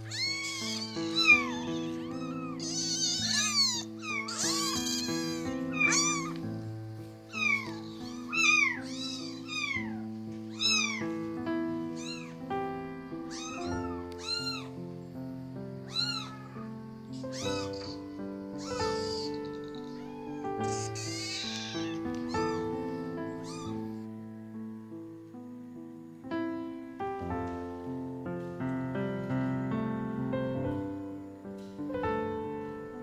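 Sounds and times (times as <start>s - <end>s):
kittens meowing: 0.0s - 6.7s, 7.3s - 12.5s, 13.1s - 14.8s, 15.8s - 24.1s
background music of held notes: 0.0s - 33.0s.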